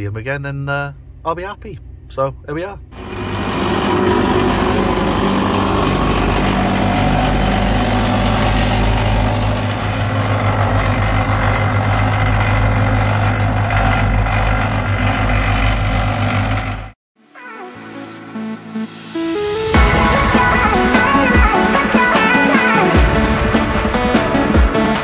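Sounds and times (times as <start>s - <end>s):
low engine hum: 0.0s - 17.0s
roller compacting stones: 3.0s - 17.0s.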